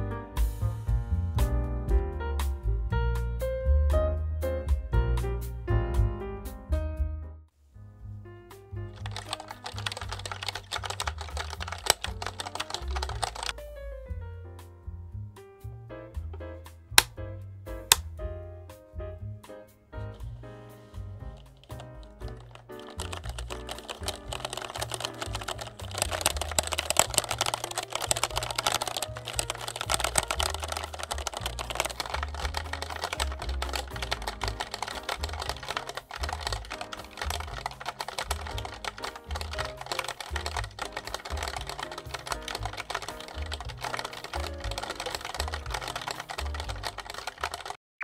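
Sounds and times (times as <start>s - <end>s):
background music with bass line: 0.0s - 8.9s
mechanical keyboard typing: 8.9s - 13.6s, 21.3s - 47.8s.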